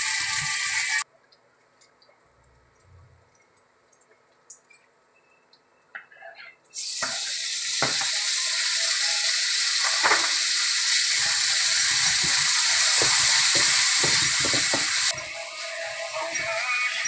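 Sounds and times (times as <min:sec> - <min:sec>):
vegetables sizzling in hot oil: 0:00.0 - 0:01.0, 0:06.8 - 0:17.0
spatula scraping and knocking pan: 0:11.2 - 0:15.2.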